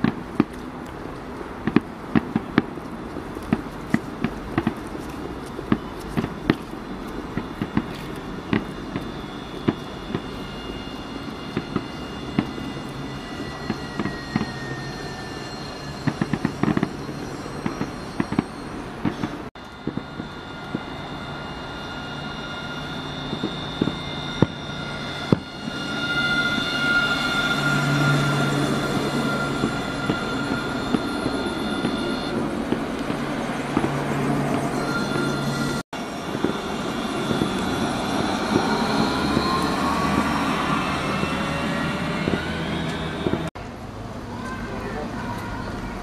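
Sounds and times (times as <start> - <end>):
fireworks popping and crackling: 0.0 - 14.6
tram electric whine: 0.0 - 46.0.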